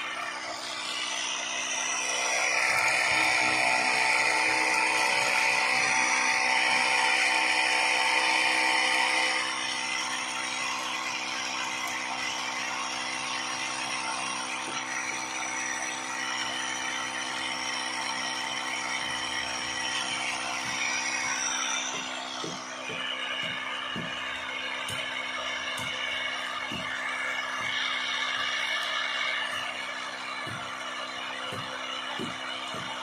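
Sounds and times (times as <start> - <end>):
mill grinding grain: 0.0 - 33.0
small electric motor running: 0.0 - 33.0.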